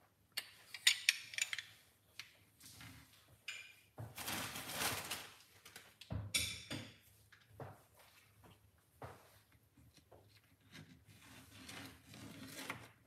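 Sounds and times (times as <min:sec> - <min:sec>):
kitchenware clinks and knocks: 0:03.4 - 0:04.2, 0:06.1 - 0:07.0
rustling noise: 0:04.0 - 0:05.8.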